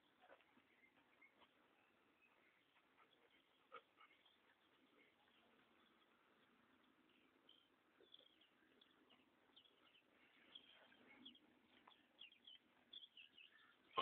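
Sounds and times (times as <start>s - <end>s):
faint bird chirps: 0.0s - 14.0s.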